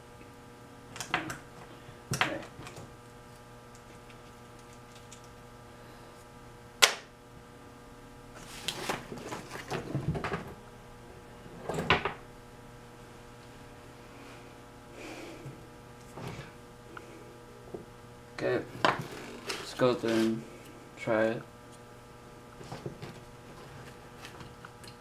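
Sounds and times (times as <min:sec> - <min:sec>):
steady electrical hum: 0:00.0 - 0:25.0
wires rustling: 0:01.6 - 0:05.5, 0:18.8 - 0:20.7.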